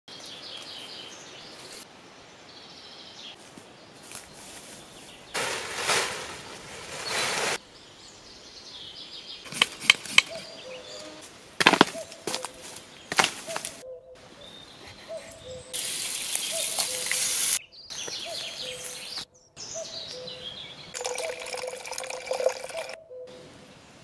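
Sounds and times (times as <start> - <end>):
faint birdsong: 0.1 - 24.0
plastic tarp rustling: 5.4 - 7.6.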